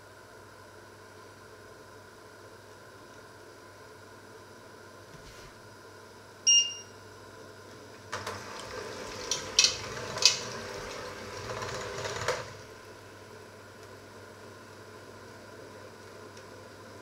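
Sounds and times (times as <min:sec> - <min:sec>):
electric hand mixer whisking: 0:08.4 - 0:12.7.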